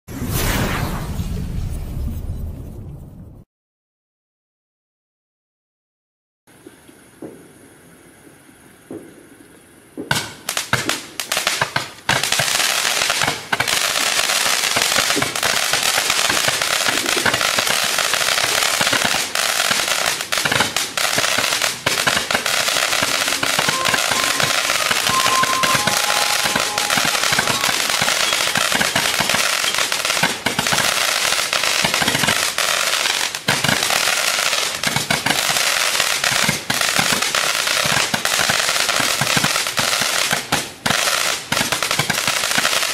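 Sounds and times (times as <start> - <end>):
firework crackling and popping: 10.0 - 42.9.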